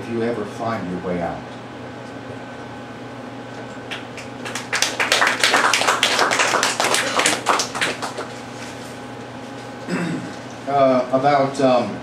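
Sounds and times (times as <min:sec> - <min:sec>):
audience applauding: 0:03.9 - 0:08.4.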